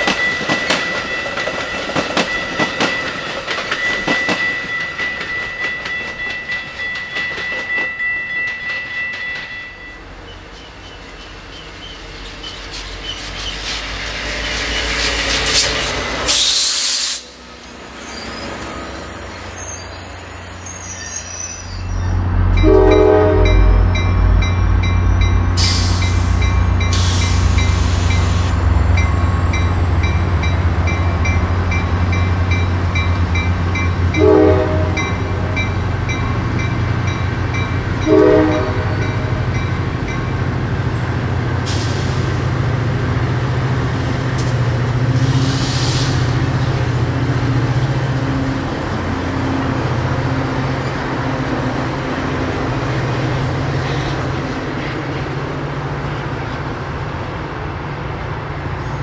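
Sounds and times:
train engine drone: 0.0s - 59.0s
air hisses: 13.2s - 17.4s, 25.6s - 28.5s, 45.2s - 46.4s.

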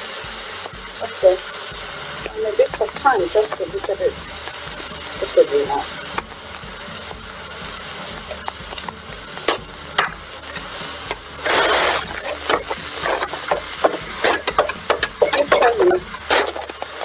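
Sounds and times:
steady hiss: 0.0s - 17.0s
wooden spoon stirring meat: 1.8s - 17.0s
spoons tapping steel pot: 8.2s - 17.0s
spoon scraping pot: 8.3s - 17.0s.

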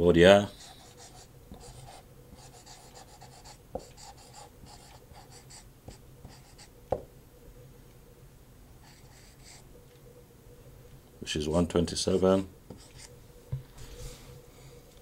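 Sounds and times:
marker squeaking on whiteboard: 0.5s - 6.7s, 8.9s - 9.6s, 12.7s - 13.2s.

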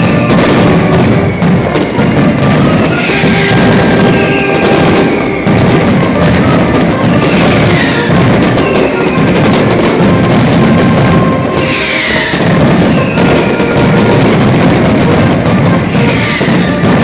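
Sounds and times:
falling whistles: 0.0s - 6.5s, 7.4s - 9.4s, 11.5s - 13.9s
firecrackers banging: 0.0s - 17.0s.

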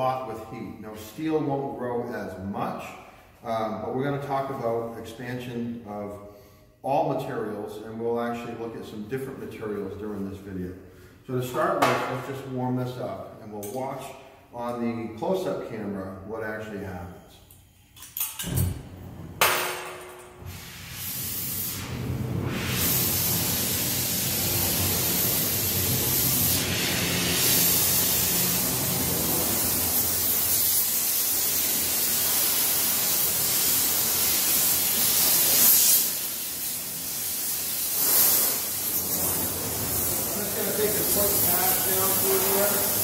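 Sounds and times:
gas torch flame hissing: 18.4s - 43.0s.

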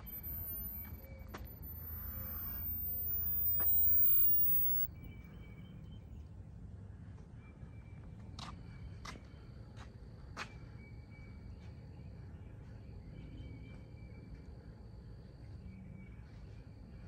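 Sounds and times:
high-pitched insect call: 0.0s - 4.9s
sharp clicks: 0.0s - 4.9s.

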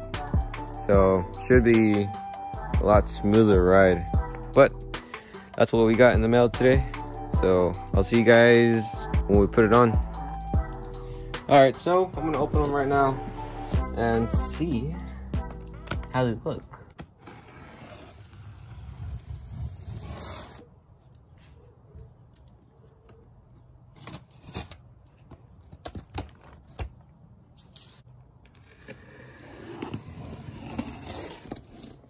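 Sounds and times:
cardboard ripping: 16.9s - 20.7s, 24.0s - 24.8s, 28.6s - 32.0s.

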